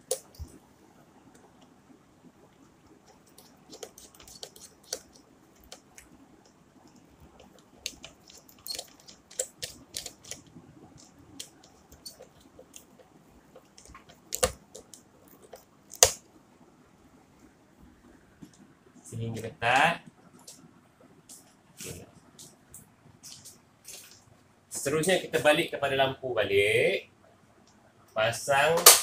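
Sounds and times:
wire clicking against plastic breaker: 13.8 - 15.0.

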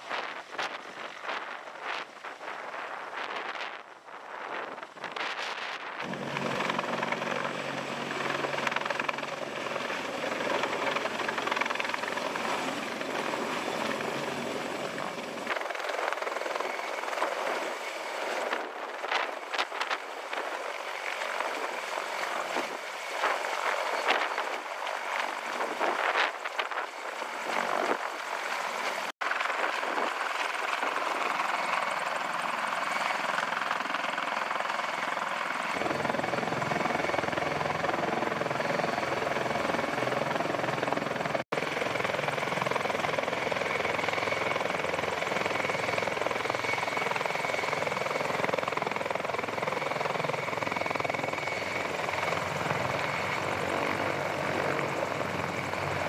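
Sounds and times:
helicopter rotors and engines: 0.0 - 56.0
high turbine whine: 0.0 - 56.0.

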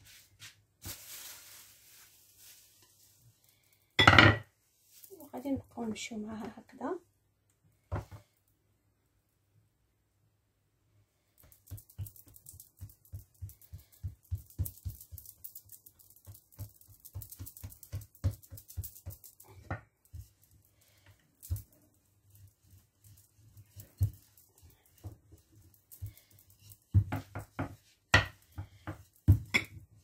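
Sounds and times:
hands slapping dough on countertop: 11.4 - 21.9, 22.7 - 30.0.

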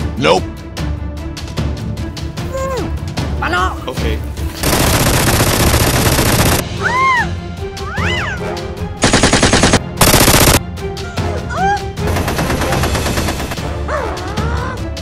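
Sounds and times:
background music: 0.0 - 15.0
machine-gun fire bursts: 4.6 - 6.6, 9.0 - 10.6, 12.1 - 13.6.

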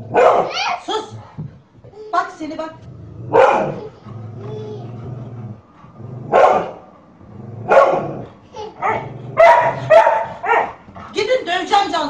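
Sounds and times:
dog barking: 0.1 - 0.8, 3.3 - 3.9, 6.3 - 6.8, 7.7 - 8.2, 8.8 - 10.8.

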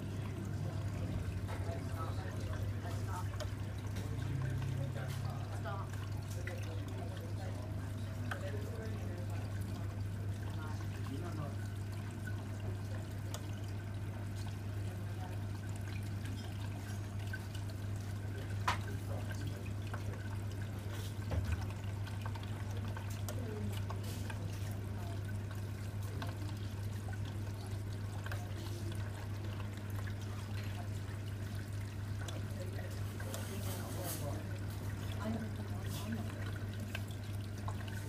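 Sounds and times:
low pump hum: 0.0 - 38.0
water trickling: 0.0 - 38.0.

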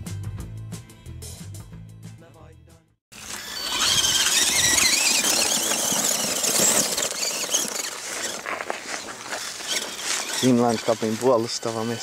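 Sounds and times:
toy truck motor whining: 3.2 - 12.0
tyres scrabbling on sand and stones: 3.2 - 12.0.

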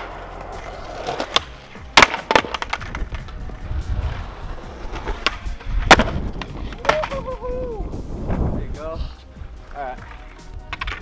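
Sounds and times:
skateboard clacking on concrete: 0.0 - 7.4, 9.6 - 11.0
skateboard rolling on concrete: 0.0 - 11.0.

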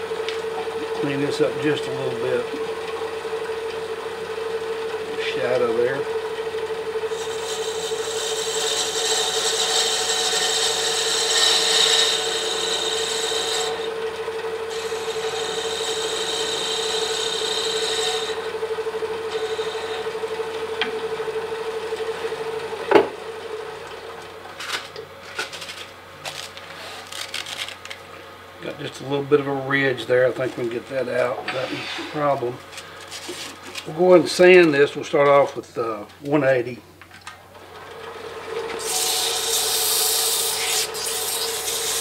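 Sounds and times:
wood lathe humming: 0.0 - 36.0, 37.5 - 42.0
turning tool scraping wood: 7.1 - 14.0, 14.7 - 18.6, 19.2 - 21.0, 24.6 - 28.0, 28.7 - 34.7, 38.7 - 42.0.

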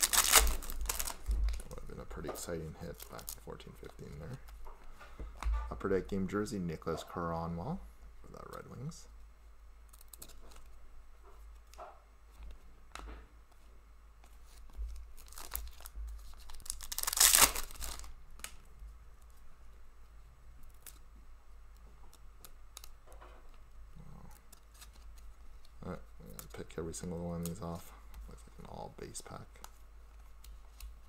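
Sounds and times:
wrapper ripping open: 0.0 - 1.8, 15.1 - 18.6
cards clicking and rustling: 0.0 - 4.6, 14.2 - 18.6, 22.1 - 27.8.

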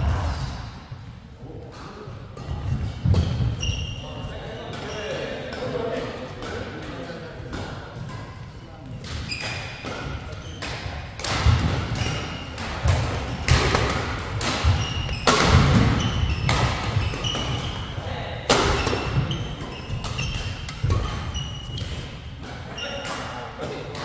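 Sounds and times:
shoe squeaks: 3.1 - 5.4, 9.2 - 10.8, 14.6 - 18.0, 18.7 - 23.0
racket hitting shuttlecock: 4.7 - 24.0.

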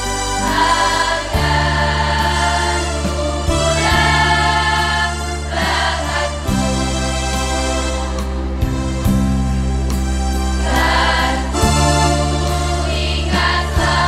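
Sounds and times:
sustained low accompaniment notes: 0.0 - 14.0
choir of young voices singing: 0.3 - 7.3, 10.6 - 14.0.

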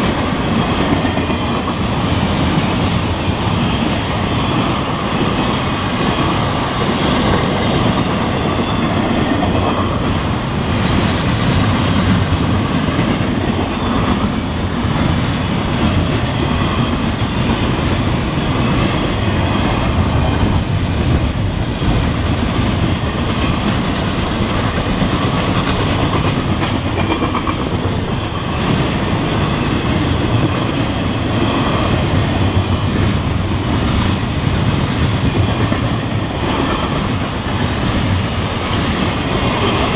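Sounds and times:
freight train wheels rumbling on rails: 0.0 - 39.9.

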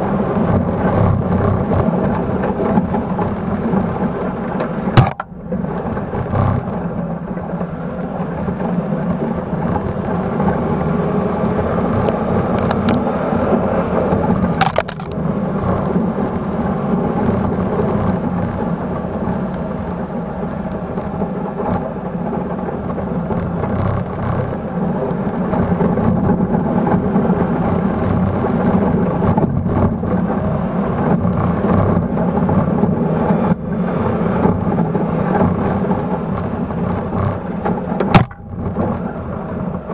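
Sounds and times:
plow blade churning snow: 0.0 - 39.9
truck engine running: 0.0 - 39.9
sharp cracks: 14.5 - 15.2.

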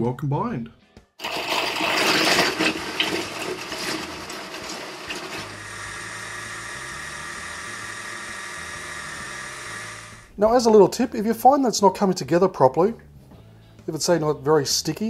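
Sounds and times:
food processor chopping nuts: 1.2 - 10.3.

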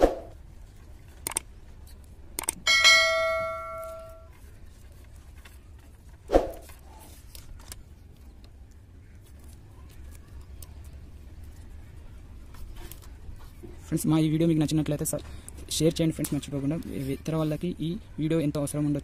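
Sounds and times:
bell chime: 2.7 - 4.3
tape and wires rustling: 3.4 - 17.8.

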